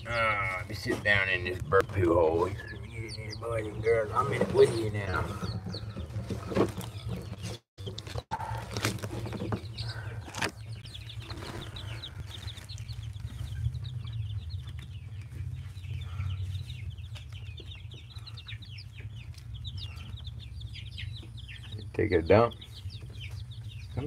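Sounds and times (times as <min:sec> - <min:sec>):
chicks peeping: 0:00.0 - 0:24.0
knocks and rustles: 0:04.2 - 0:14.0
steady low rumble: 0:10.7 - 0:21.9.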